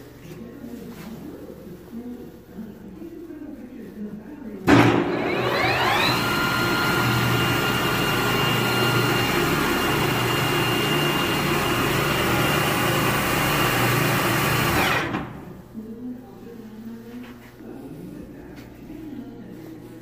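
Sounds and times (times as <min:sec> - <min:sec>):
lathe spindle whine: 0:05.1 - 0:15.4.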